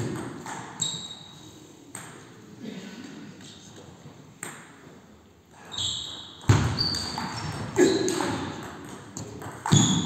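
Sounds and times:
shoes squeaking on floor: 0.7s - 1.5s, 5.6s - 8.5s, 9.7s - 10.0s.

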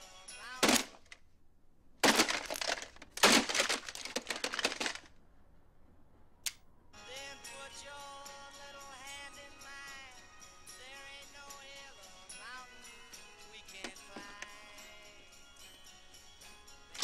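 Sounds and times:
song on clock radio: 0.0s - 1.0s, 7.0s - 17.0s
plastic crashing and crunching: 0.6s - 1.2s, 2.0s - 5.1s, 13.8s - 14.5s.

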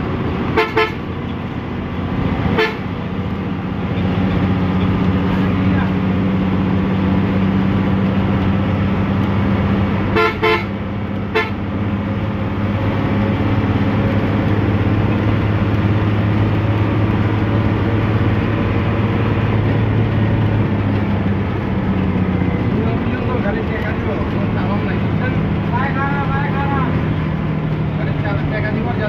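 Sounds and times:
coach engine running: 0.0s - 29.0s
horn toots: 0.5s - 1.0s, 2.5s - 2.9s, 10.1s - 11.6s.

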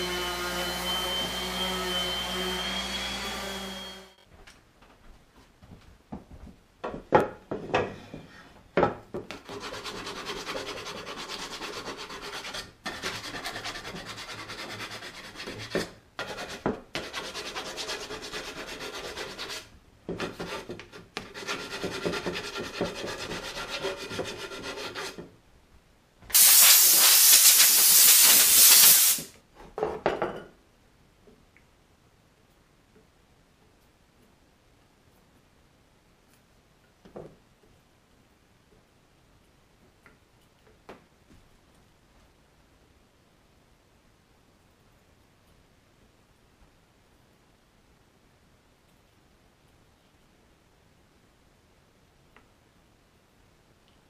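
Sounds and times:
wooden chair parts knocking: 6.2s - 8.0s
sandpaper rubbing on wood: 9.5s - 19.7s, 21.3s - 25.2s, 26.4s - 29.3s
loud hiss: 26.3s - 29.3s.

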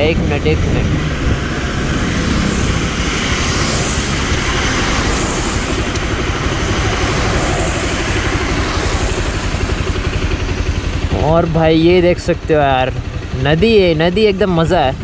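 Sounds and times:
wind rushing on microphone: 0.0s - 11.2s
motorcycle engine running: 0.0s - 15.0s.

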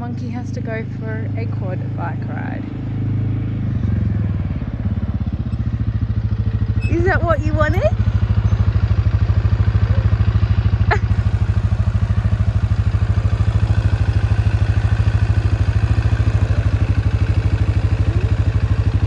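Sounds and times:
quad bike engine idling: 0.0s - 19.0s
brief high squeak: 6.8s - 7.1s.

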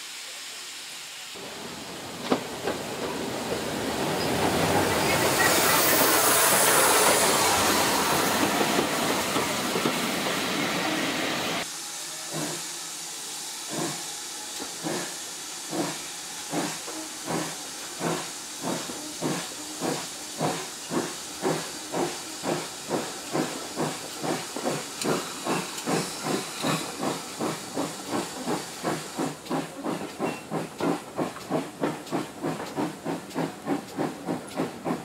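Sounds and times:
loud steam hiss: 0.0s - 35.0s
steam locomotive chuffing: 1.4s - 35.0s.

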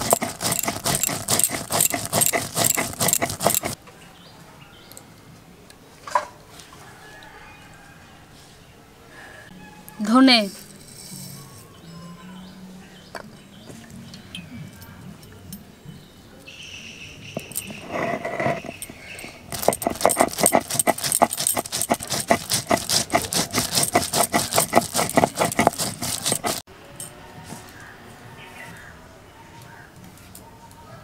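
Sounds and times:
stone roller crushing seeds: 0.0s - 3.8s, 17.3s - 26.7s.

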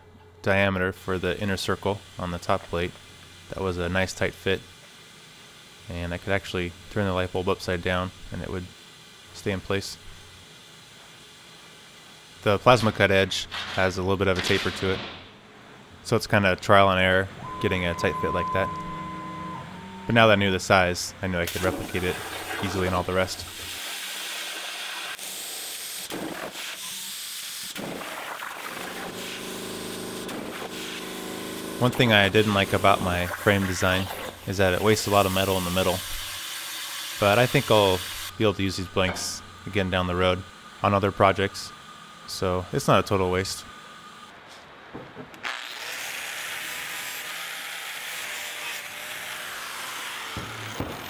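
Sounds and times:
multi-pitched machine hum: 15.2s - 23.8s, 28.6s - 36.4s, 37.1s - 44.4s
hiss of air and steam: 21.5s - 31.2s, 31.8s - 38.3s
angle grinder grinding steel: 45.5s - 50.8s.

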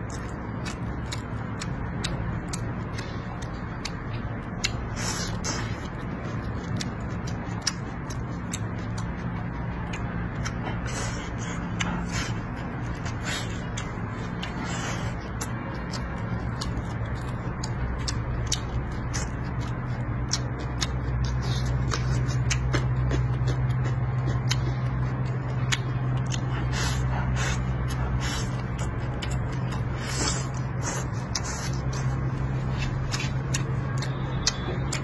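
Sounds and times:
chewing and lip-smacking: 0.0s - 35.0s
steady low hum: 0.0s - 35.0s.

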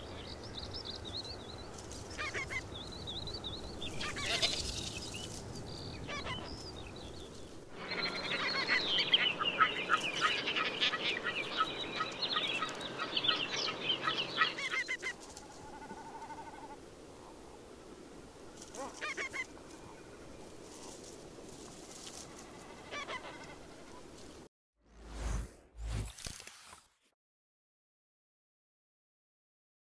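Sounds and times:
flock of ruffs calling: 2.1s - 2.7s, 3.8s - 6.9s, 7.7s - 16.8s, 18.6s - 20.2s, 22.2s - 24.2s.

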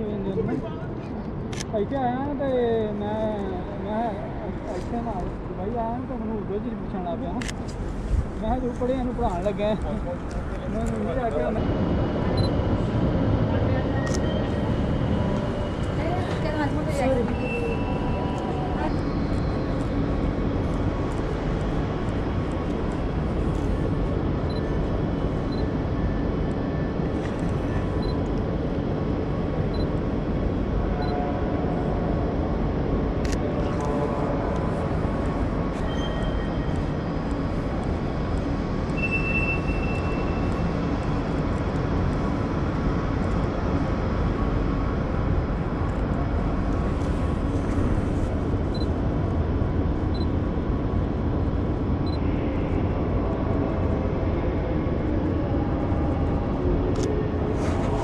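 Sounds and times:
low rumble of station hall: 0.0s - 58.0s
brief high beep: 39.0s - 40.5s.

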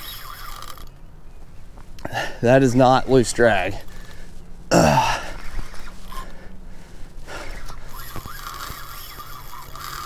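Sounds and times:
fishing reel cranking: 0.0s - 0.9s, 5.4s - 6.2s, 7.4s - 10.0s
man breathing hard and gasping: 2.0s - 2.4s.

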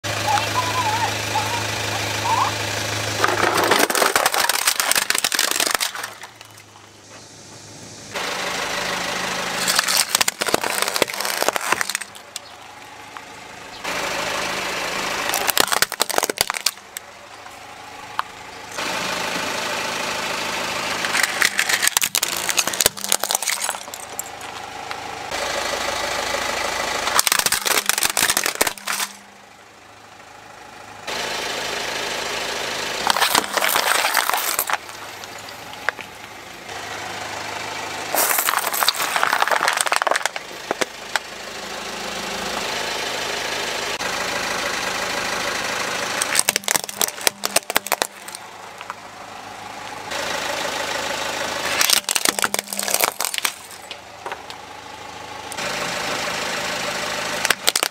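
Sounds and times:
car engine running: 0.0s - 57.9s
plastic cracking under tyre: 3.2s - 6.8s, 9.6s - 12.6s, 15.2s - 17.0s, 21.0s - 24.6s, 27.1s - 29.2s, 33.0s - 36.2s, 38.2s - 41.3s, 46.2s - 49.0s, 51.8s - 54.6s, 57.4s - 57.9s.

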